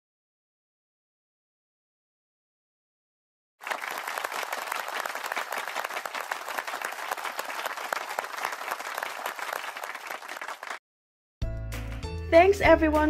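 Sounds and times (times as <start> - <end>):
crowd clapping: 3.6 - 10.8.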